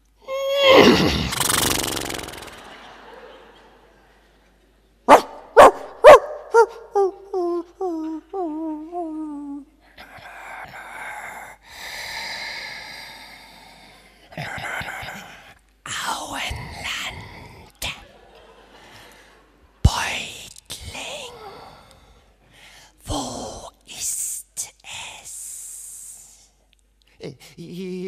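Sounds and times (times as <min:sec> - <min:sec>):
loud vocal cry: 0:00.3 - 0:01.4
breathy hissing: 0:00.8 - 0:02.8
man imitating dog barks: 0:05.1 - 0:09.2.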